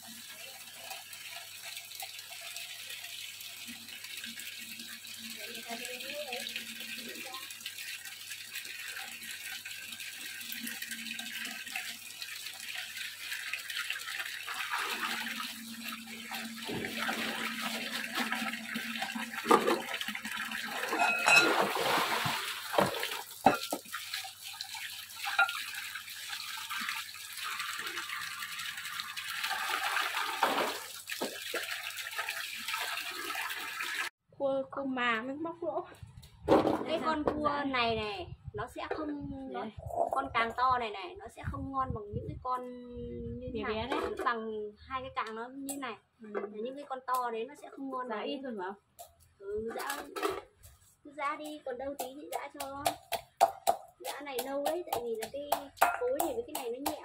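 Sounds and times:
tap water splashing into basin: 0.8s - 34.1s, 52.0s - 57.0s
crabs being stirred by hand: 51.4s - 57.0s
sharp clacks of containers: 51.9s - 57.0s.

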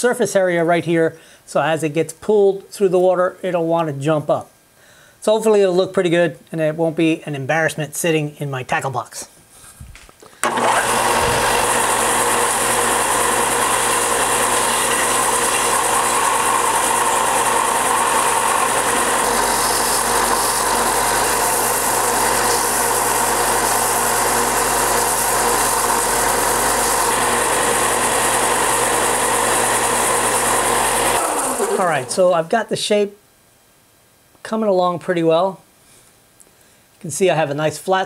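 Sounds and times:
belt sander grinding wood: 10.4s - 32.3s.

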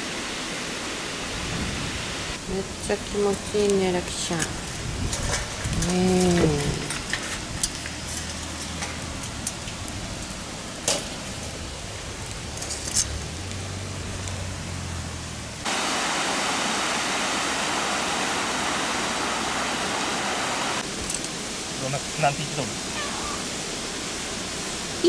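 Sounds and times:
water cascading down a weir: 15.5s - 25.0s.

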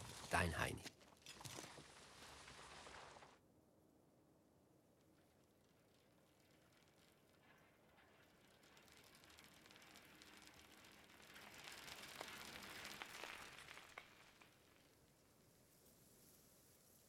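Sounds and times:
faint hiss: 4.8s - 17.0s.

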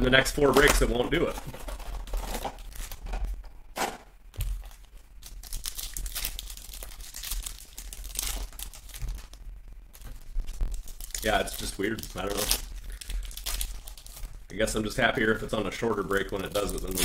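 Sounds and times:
foil packs crinkling and tearing: 0.0s - 3.3s, 4.4s - 17.0s.

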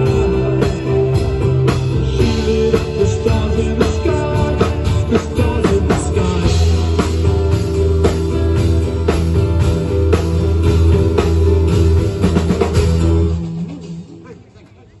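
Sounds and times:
low bass notes: 0.0s - 13.8s
rock band playing: 0.0s - 14.9s.

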